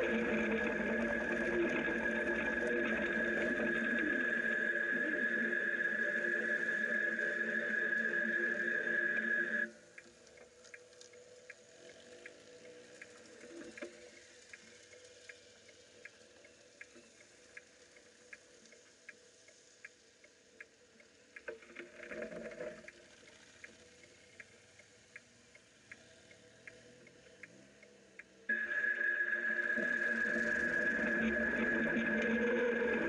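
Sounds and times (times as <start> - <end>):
light ticks: 9.6 - 32.2.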